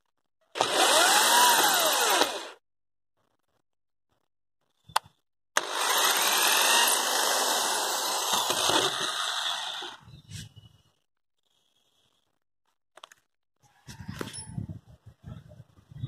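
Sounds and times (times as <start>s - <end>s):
electric drill motor running: 0.6s - 2.6s, 5.6s - 10.1s.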